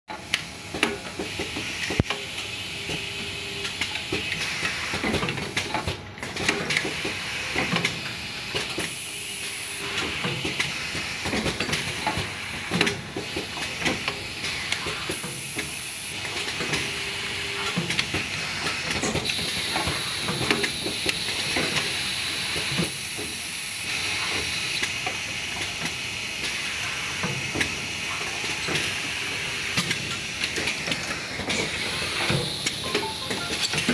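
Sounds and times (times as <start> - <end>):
machine clicks and clacks: 3.6 - 9.0, 9.8 - 16.9, 17.6 - 21.9.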